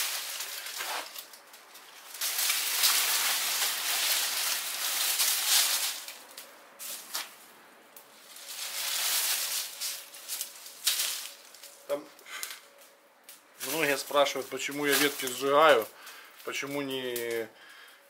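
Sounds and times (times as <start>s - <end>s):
bonfire crackling and hissing: 0.0s - 18.0s.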